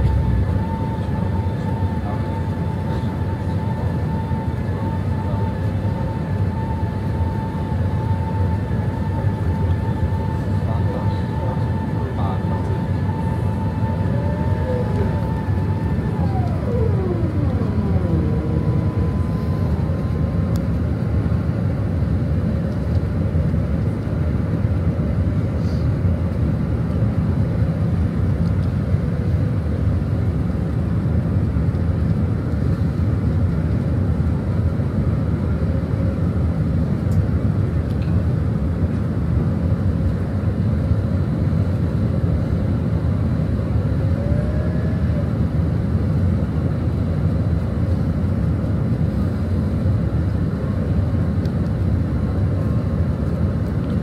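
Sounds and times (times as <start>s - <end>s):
falling whine: 0.0s - 22.6s
airplane cabin rushing noise: 0.0s - 23.0s.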